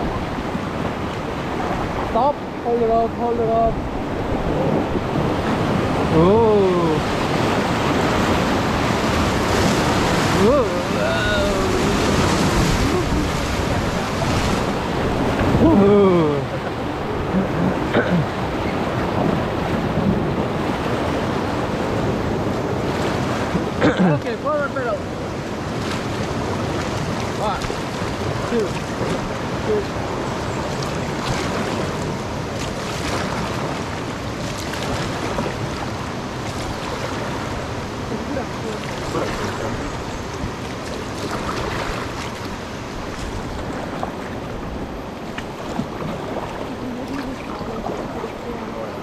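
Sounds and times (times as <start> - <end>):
wind noise on microphone: 0.0 - 24.0
paddle splashes: 0.0 - 49.0
whitewater rushing over rapids: 0.0 - 49.0.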